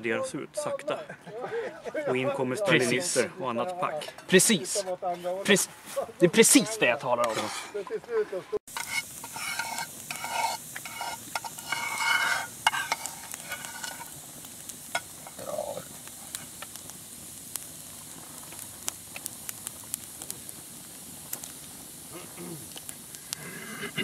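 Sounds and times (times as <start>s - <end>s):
campfire crackling and popping: 0.3s - 24.0s
spoons scraping metal tins: 6.5s - 7.8s, 8.7s - 14.2s, 14.9s - 15.6s.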